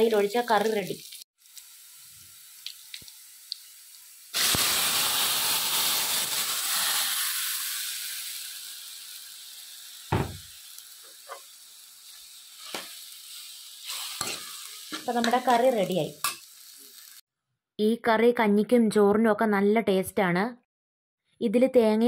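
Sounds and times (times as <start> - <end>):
curry sizzling in hot oil: 0.0 - 17.2.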